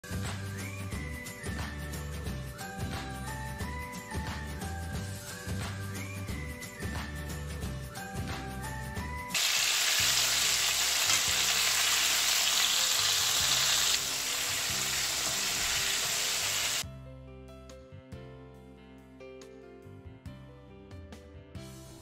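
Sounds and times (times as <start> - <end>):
background music: 0.0 - 22.0
chicken deep-frying in oil: 9.3 - 16.8.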